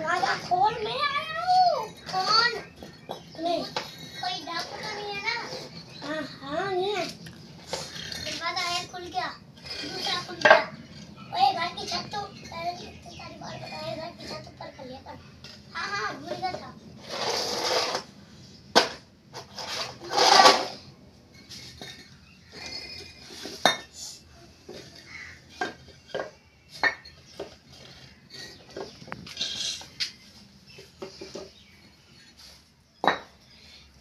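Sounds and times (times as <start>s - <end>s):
brick scraping: 0.0s - 24.0s, 24.6s - 33.4s
bricks clinking and knocking: 7.0s - 11.1s, 24.7s - 30.1s, 33.0s - 33.4s.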